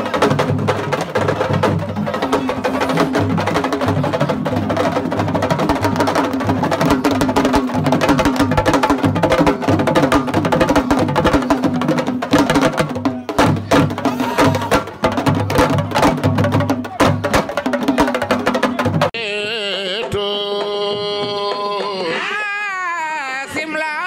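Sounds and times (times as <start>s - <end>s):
fast drumming: 0.0s - 19.2s.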